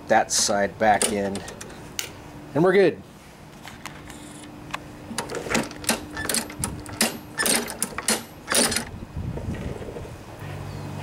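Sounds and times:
handle controls clicking and rattling: 0.8 - 2.2, 3.7 - 9.0.

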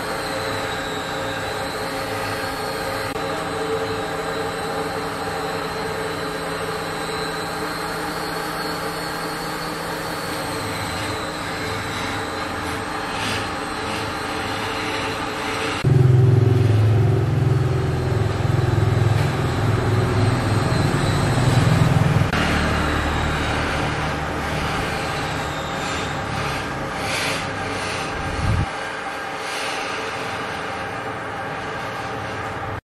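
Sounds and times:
mechanical running noise: 0.0 - 32.8
heavy low hum: 15.8 - 29.3.

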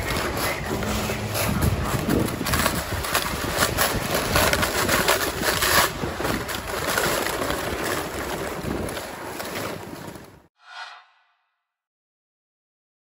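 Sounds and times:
wind buffeting microphone: 0.0 - 9.4.

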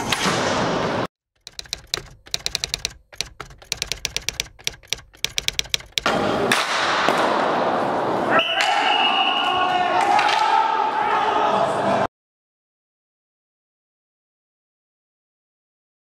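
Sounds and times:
loud rink hall noise: 0.0 - 1.1, 6.1 - 12.1
keyboard key clicks: 1.4 - 6.1.

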